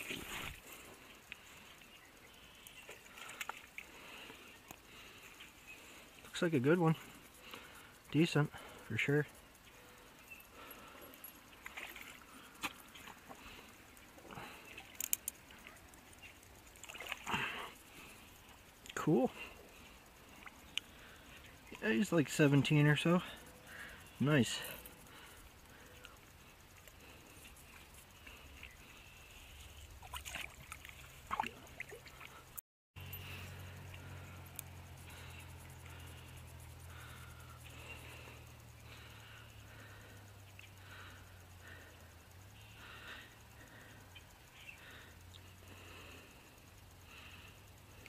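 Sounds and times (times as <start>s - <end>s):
quick run of ticks: 0.0s - 48.0s
steady low hum: 0.0s - 48.0s
water splashing and dripping: 11.6s - 13.4s, 16.8s - 17.6s, 30.0s - 32.4s.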